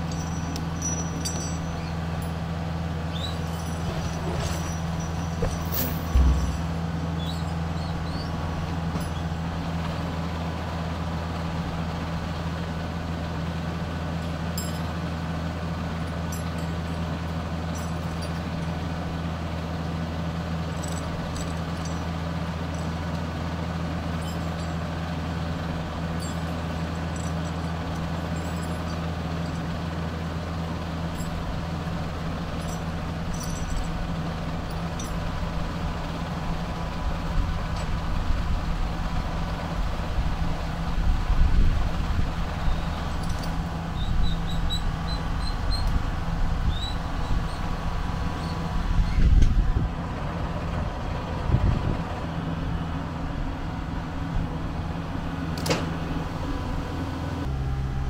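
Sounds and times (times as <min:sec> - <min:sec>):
tractor diesel engine running: 0:00.0 - 0:58.0.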